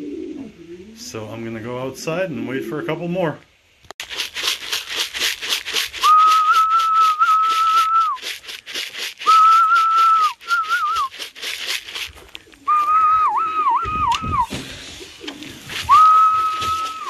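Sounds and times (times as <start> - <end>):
fast even rattle: 4.0 - 12.2
person whistling: 6.0 - 8.2, 9.2 - 11.1, 12.7 - 14.5, 15.8 - 17.0.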